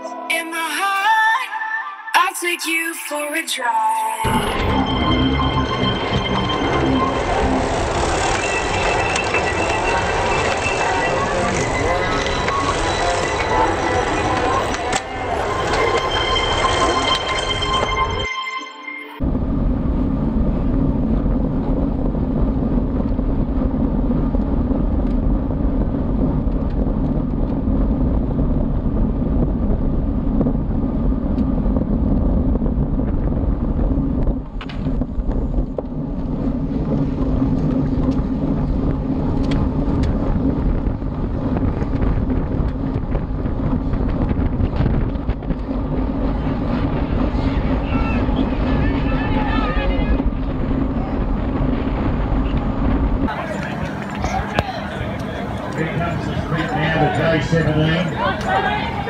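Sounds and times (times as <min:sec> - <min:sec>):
road rumble: 0:04.2 - 0:18.2, 0:19.2 - 0:59.0
wind rushing over microphone: 0:19.2 - 0:59.0.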